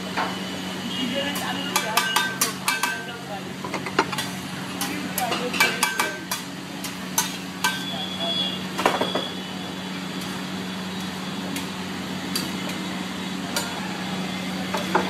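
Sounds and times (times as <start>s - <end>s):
metal utensils clinking on griddle: 1.3s - 7.9s, 13.5s - 13.8s.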